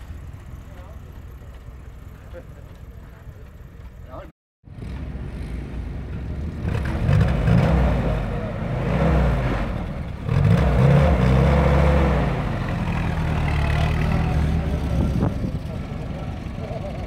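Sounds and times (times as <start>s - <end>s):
jeep engine revving: 6.4s - 17.0s.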